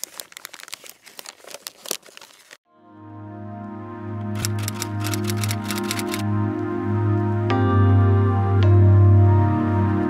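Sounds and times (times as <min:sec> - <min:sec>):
scratchy crinkling clicks and rustles: 0:00.0 - 0:02.6
music of sustained tones: 0:02.7 - 0:05.2, 0:05.9 - 0:10.0.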